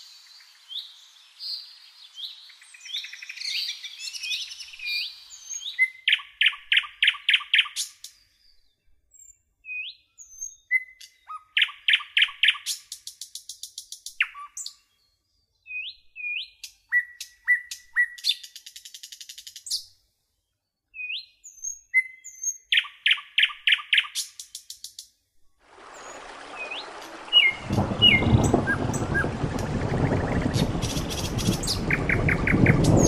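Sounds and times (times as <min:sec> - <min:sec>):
songbird chirping trills: 0:00.0 - 0:25.2, 0:25.8 - 0:33.0
bird upslurred whistles: 0:15.7 - 0:18.4, 0:21.0 - 0:24.2
hissing noise with low rumble: 0:27.1 - 0:33.0.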